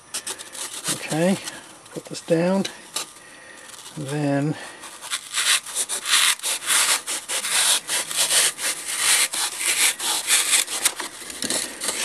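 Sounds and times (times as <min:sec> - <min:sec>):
knife sawing through foam: 0:00.5 - 0:01.4, 0:04.8 - 0:12.0.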